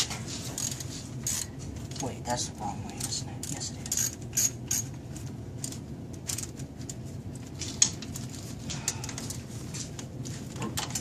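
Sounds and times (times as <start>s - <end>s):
low steady hum: 0.0s - 11.0s
ratchet wrench clicking: 0.6s - 1.5s, 3.0s - 4.9s.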